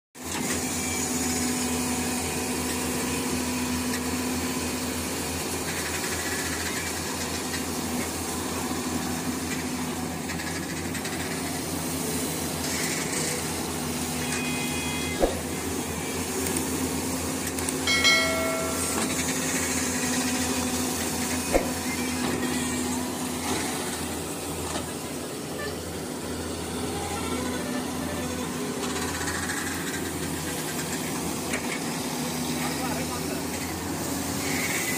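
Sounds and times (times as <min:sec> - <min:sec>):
excavator diesel engine: 0:00.2 - 0:34.9
short pitched sound: 0:17.9 - 0:20.0.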